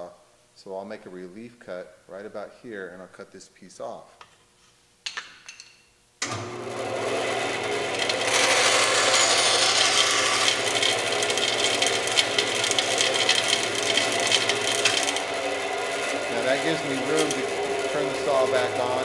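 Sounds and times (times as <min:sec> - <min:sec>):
band saw motor humming: 0:06.2 - 0:19.0
saw blade cutting wood: 0:07.0 - 0:19.0.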